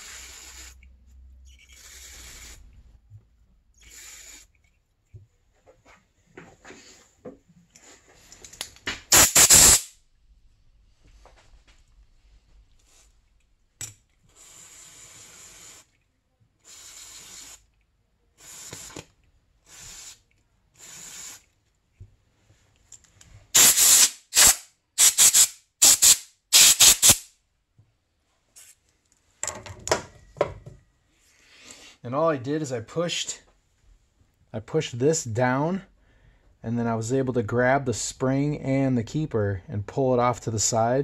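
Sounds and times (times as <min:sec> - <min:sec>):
aerosol can spraying bursts: 0:09.1 - 0:10.0, 0:19.7 - 0:20.2, 0:20.8 - 0:21.4, 0:23.5 - 0:27.3.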